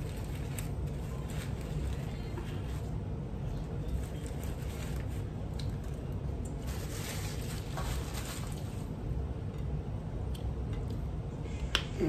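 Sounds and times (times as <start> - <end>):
paper wrapper crinkling: 0.0 - 3.0, 3.8 - 8.9
steady low hum: 0.0 - 12.0.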